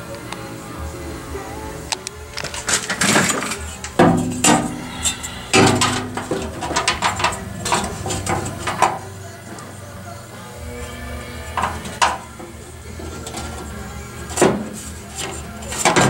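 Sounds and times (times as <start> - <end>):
sheet metal clattering and clanking: 2.4 - 4.8, 5.5 - 9.0.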